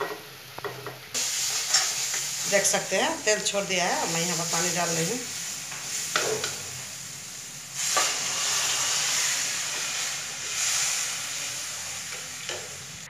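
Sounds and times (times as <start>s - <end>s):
water sizzling in hot oil: 0.0s - 13.0s.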